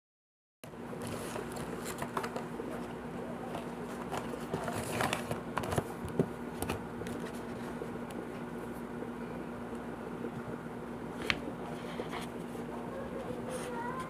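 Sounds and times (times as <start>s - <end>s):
packaging rustling: 1.0s - 7.6s.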